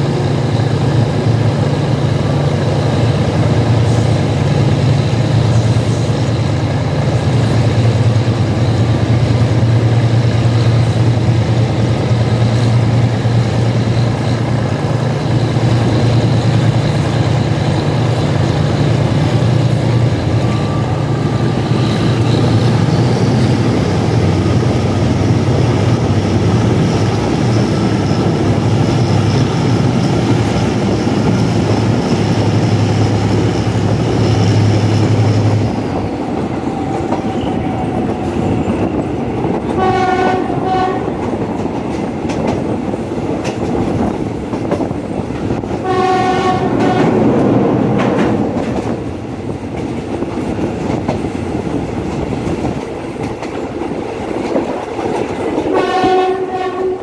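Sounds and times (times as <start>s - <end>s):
train wheels clattering on track: 0.0s - 57.0s.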